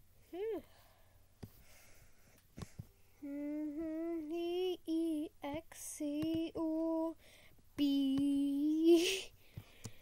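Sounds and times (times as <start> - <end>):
high voice singing wordless tune: 3.2 - 10.0.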